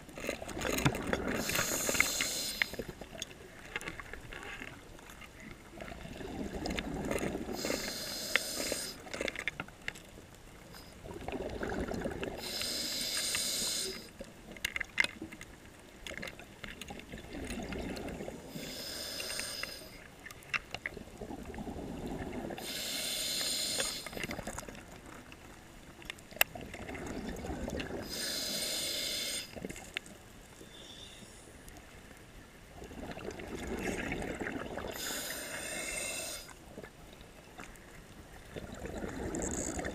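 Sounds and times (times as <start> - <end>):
diver breathing through regulator: 1.3 - 2.9, 7.4 - 9.1, 12.3 - 14.1, 18.5 - 20.0, 22.6 - 24.2, 28.0 - 29.6, 34.9 - 36.6.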